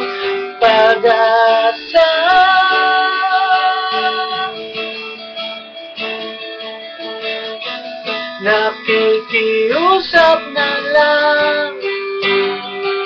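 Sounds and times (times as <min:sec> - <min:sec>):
man singing a slow ballad: 0:00.0 - 0:04.7, 0:08.4 - 0:12.5
plucked guitar: 0:00.0 - 0:13.0.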